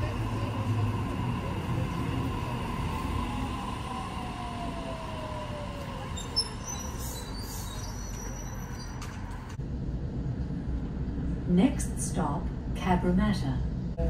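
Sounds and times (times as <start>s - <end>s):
train low rumble: 0.0s - 14.0s.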